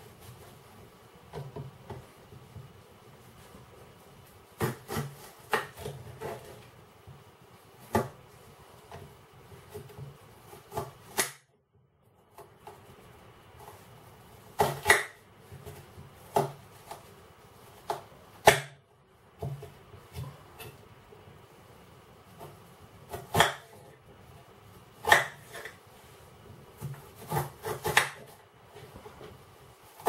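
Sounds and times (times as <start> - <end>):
knife chopping onion on glass board: 4.6 - 6.6, 9.6 - 11.5, 14.5 - 17.1, 17.8 - 18.8, 22.3 - 23.9, 25.0 - 25.8, 26.8 - 28.3.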